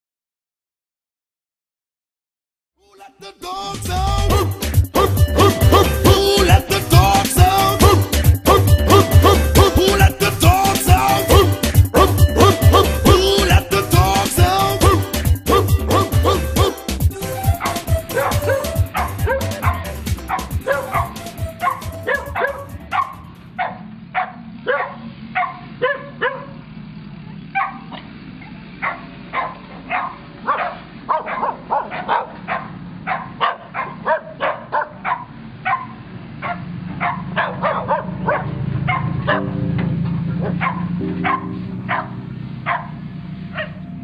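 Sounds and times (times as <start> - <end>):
dogs barking: 11.1 - 13.0, 14.8 - 26.6, 27.3 - 39.6, 40.3 - 43.9.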